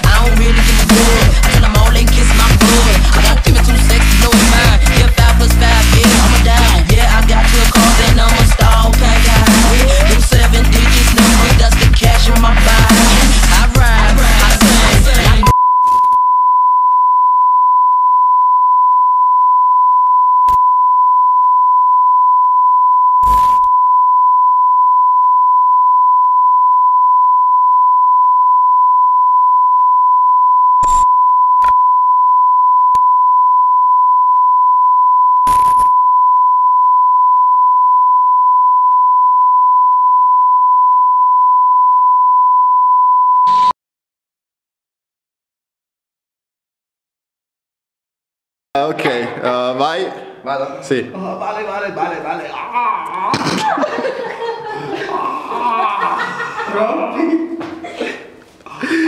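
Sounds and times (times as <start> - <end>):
steady electronic beep tone: 15.4 - 43.7.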